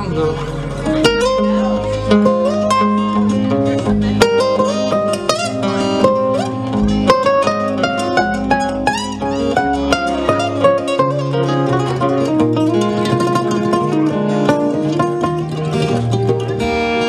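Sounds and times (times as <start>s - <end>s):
acoustic guitar lead melody: 0.0s - 17.0s
strummed guitar chords: 0.0s - 17.0s.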